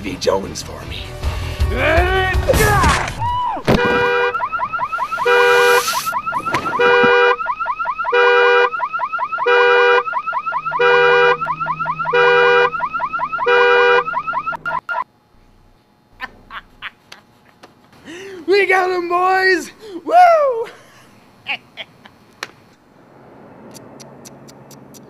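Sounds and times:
car alarm horn tone: 3.7s - 15.0s
car alarm rising chirps: 3.7s - 15.1s.

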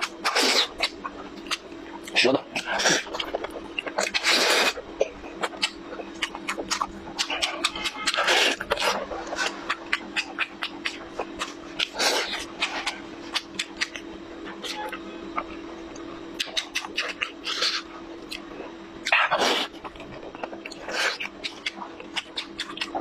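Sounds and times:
wet chewing: 0.0s - 23.0s
loud slurps: 4.0s - 4.8s.

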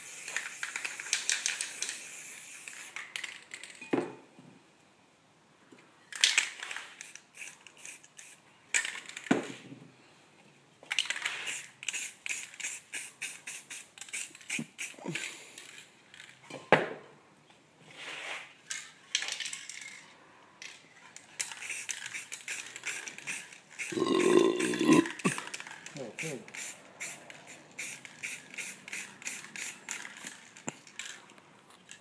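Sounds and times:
spray paint hissing: 0.0s - 3.4s, 7.0s - 8.4s, 11.1s - 15.2s, 21.4s - 25.5s, 26.2s - 30.5s
spray can ball rattling: 0.0s - 3.8s, 6.2s - 9.3s, 10.9s - 15.0s, 20.6s - 31.2s.

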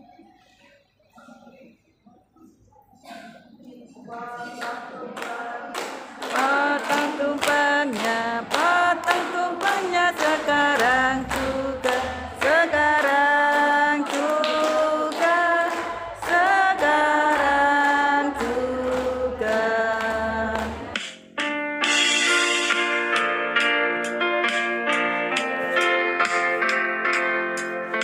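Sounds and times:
women singing together: 3.2s - 21.0s
hands clapping in time: 4.6s - 21.4s.

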